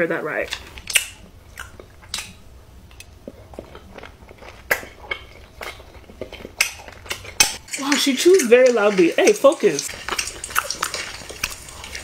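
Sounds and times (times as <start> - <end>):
low steady hum: 0.0 - 12.0
person chewing loudly: 0.5 - 12.0.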